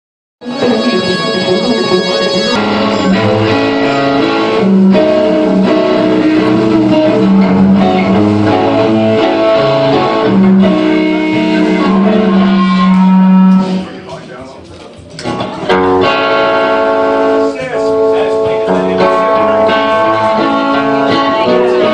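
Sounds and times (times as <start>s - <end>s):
distorted electric guitars: 0.4s - 14.4s, 15.0s - 21.9s
bass line: 0.5s - 14.0s.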